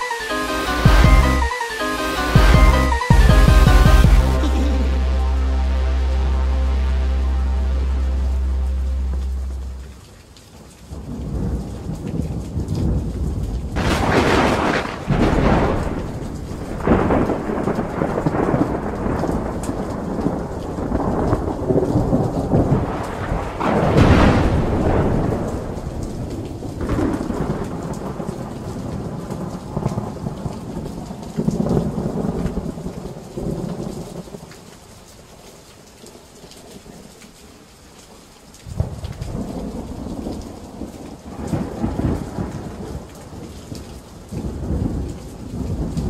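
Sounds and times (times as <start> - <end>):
steady rain: 0.0 - 46.0
thunder rolling: 10.9 - 30.5, 38.7 - 43.4.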